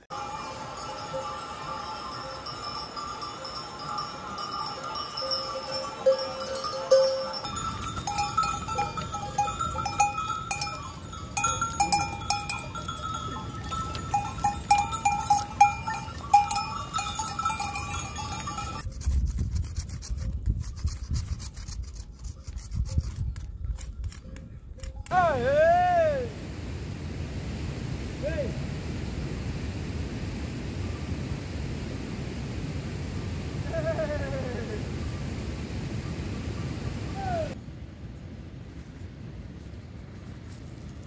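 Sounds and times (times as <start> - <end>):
goat bells clanking: 0.0 - 19.0
hooves clicking on stone: 3.4 - 25.1
wind rumbling on microphone: 7.5 - 25.1.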